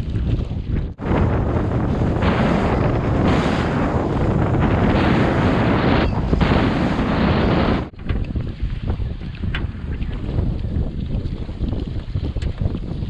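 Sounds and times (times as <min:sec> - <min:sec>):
water washing along boat hull: 0:00.0 - 0:13.0
wind buffeting microphone: 0:00.0 - 0:13.0.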